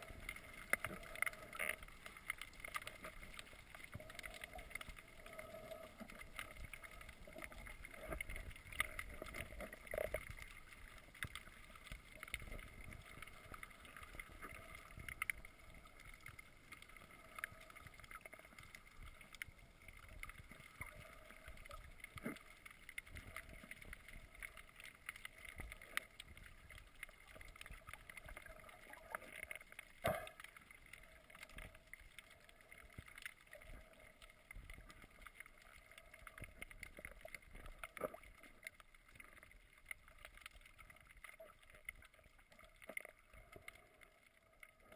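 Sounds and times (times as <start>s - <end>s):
clicks and crackles: 0.0s - 44.9s
muffled underwater hiss: 0.0s - 44.9s.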